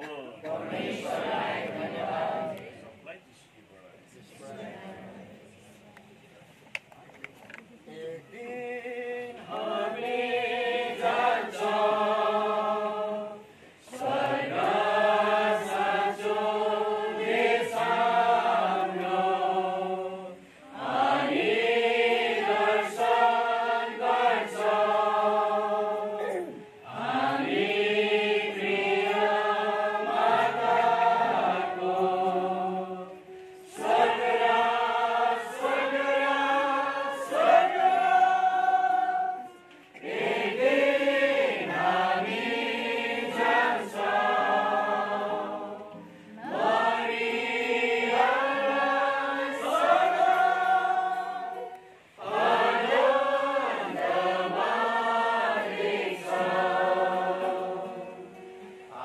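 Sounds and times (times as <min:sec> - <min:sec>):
congregation singing a hymn: 0:00.4 - 0:03.0, 0:08.4 - 0:59.0
acoustic guitar: 0:43.2 - 0:47.1, 0:53.8 - 0:59.0.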